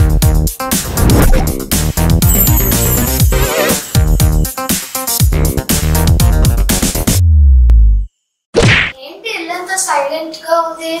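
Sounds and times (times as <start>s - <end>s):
electronic music: 0.6s - 8.1s
short whoosh: 0.8s - 1.7s
deep bass hit dropping in pitch: 0.8s - 2.0s.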